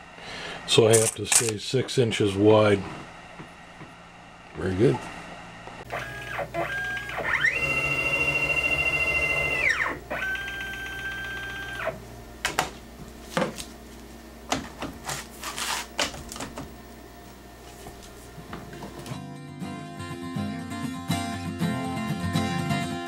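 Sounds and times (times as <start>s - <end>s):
motors whining: 5.4s - 12.2s.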